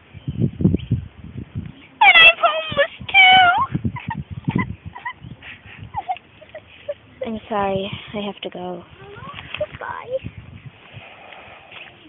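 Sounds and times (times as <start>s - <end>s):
kitten mewing: 2.0s - 3.8s.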